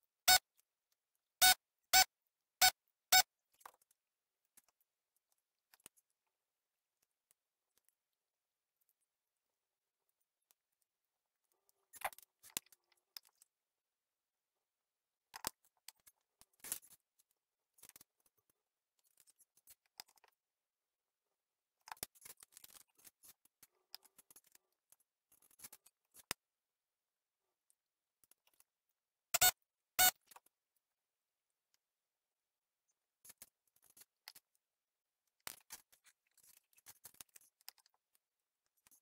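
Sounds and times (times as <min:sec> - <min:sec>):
faint clicks and rustles: 0:21.8 - 0:26.4, 0:35.3 - 0:39.0.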